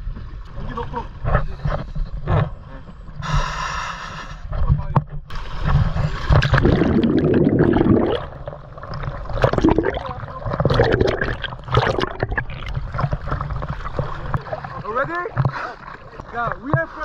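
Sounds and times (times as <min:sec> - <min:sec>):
water splashing at camera: 0:04.5 - 0:17.0.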